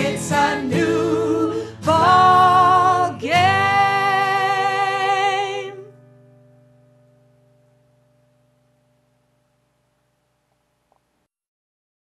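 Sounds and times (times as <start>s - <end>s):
woman singing folk song: 0.0s - 6.0s
acoustic guitar: 0.0s - 11.3s.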